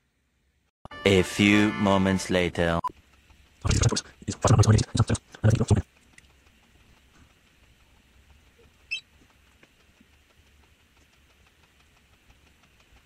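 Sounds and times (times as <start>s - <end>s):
faint ticks: 2.9s - 13.0s.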